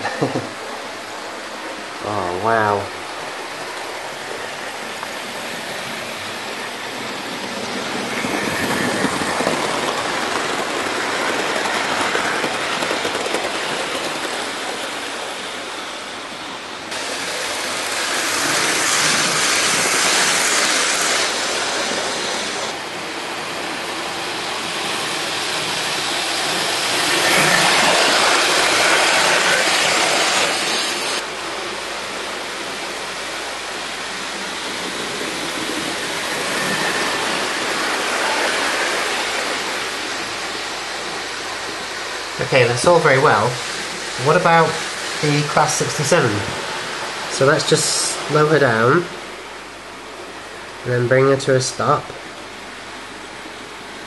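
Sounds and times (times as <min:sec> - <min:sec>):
model train wheels on rails: 0:03.7 - 0:22.8, 0:23.6 - 0:31.2, 0:33.2 - 0:49.2.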